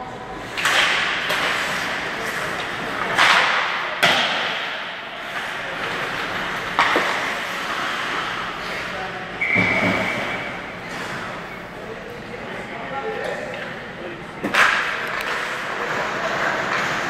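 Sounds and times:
hockey sticks striking puck: 0.4 - 11.3, 14.4 - 17.0.

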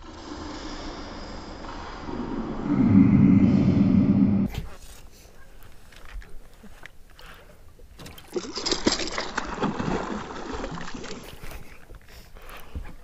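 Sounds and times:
water lapping: 6.0 - 13.0
fish splashing at surface: 8.0 - 11.5.

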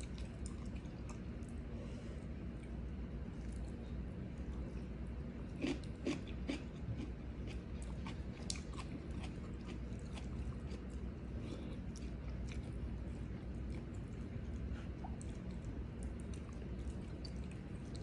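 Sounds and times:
person chewing crunchy food: 5.4 - 18.0.

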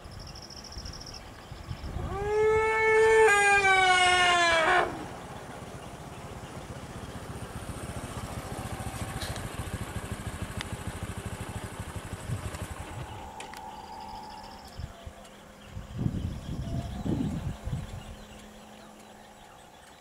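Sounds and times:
jeep engine idling: 4.9 - 20.0.

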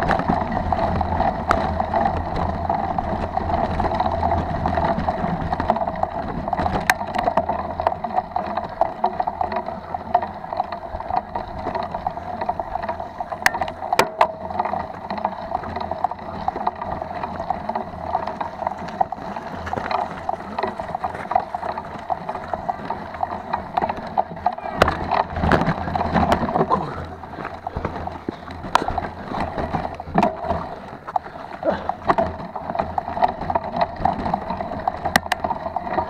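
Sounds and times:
bike tyres crunching on stones: 0.0 - 36.0
wind rumble on microphone: 0.0 - 36.0.

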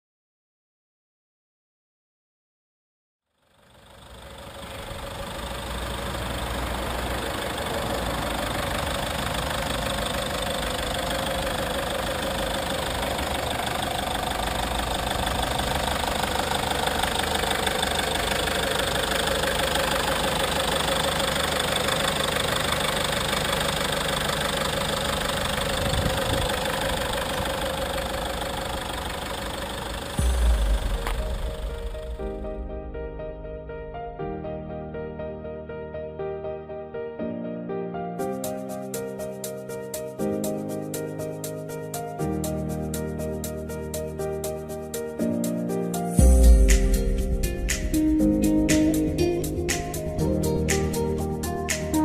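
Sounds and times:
van engine idling: 3.4 - 33.4.

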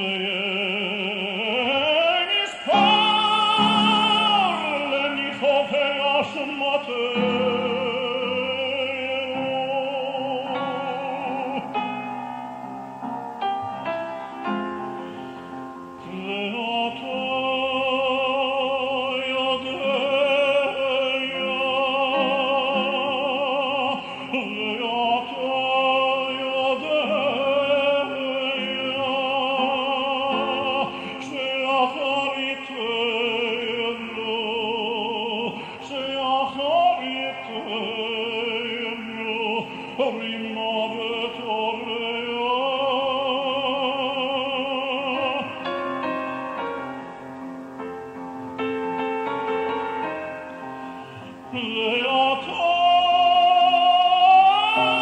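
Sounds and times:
man singing liturgical chant: 0.0 - 12.0, 16.0 - 45.9, 51.5 - 55.0
sustained instrumental accompaniment: 7.2 - 18.0.

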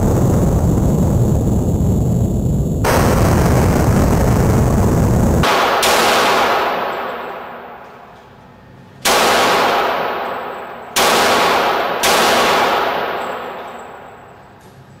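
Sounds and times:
pistol shots echoing: 5.4 - 8.2, 9.0 - 14.6.

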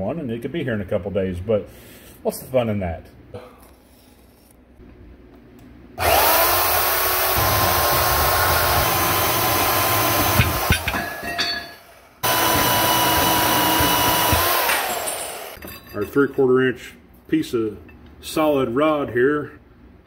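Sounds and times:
band saw cutting steel: 6.0 - 15.6.

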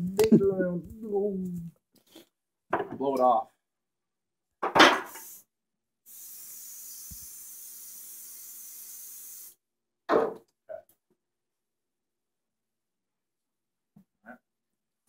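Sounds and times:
compressed air hissing from blow gun: 5.1 - 5.5, 6.1 - 9.6.

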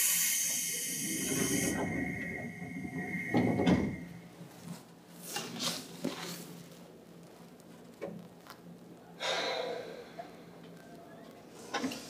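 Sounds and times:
air hiss: 0.0 - 4.3.

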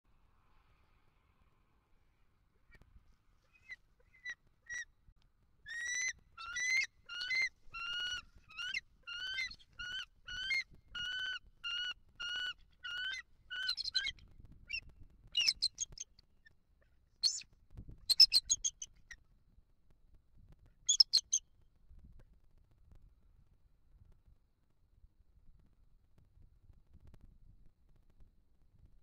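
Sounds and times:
eagle calling: 3.6 - 4.9, 5.7 - 14.8.

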